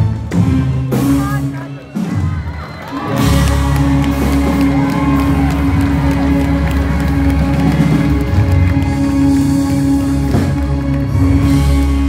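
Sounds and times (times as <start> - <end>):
live band playing: 0.0 - 12.0
crowd cheering and whooping: 1.6 - 11.8.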